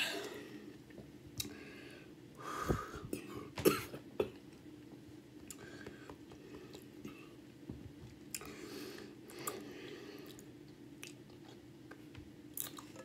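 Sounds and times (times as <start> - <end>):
person eating: 8.3 - 13.0.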